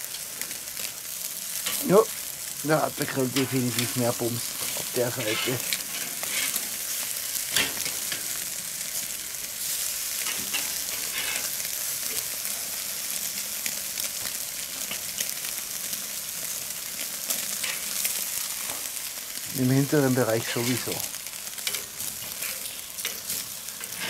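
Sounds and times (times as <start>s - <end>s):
meat sizzling on a grill: 0.0s - 24.0s.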